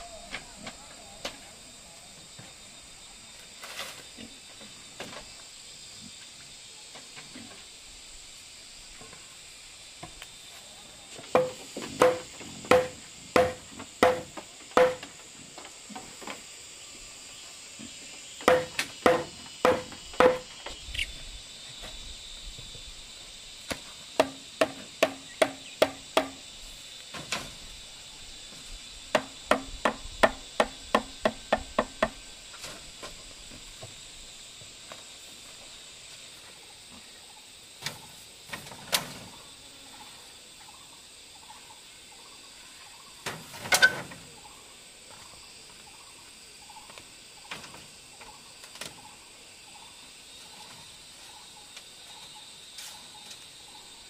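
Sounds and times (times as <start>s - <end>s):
crickets buzzing: 0.0s - 54.0s
hollow knocks on bamboo: 11.3s - 15.2s, 18.4s - 20.8s, 23.7s - 26.4s, 29.1s - 32.2s.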